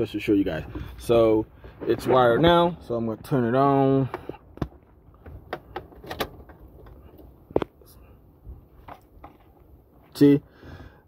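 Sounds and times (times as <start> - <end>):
light clicks and knocks in car: 4.0 - 7.8.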